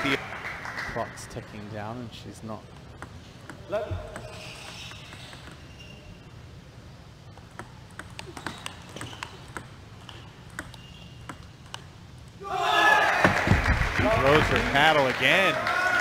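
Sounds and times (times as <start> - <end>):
table tennis ball clicking: 2.7 - 5.7, 7.3 - 12.4.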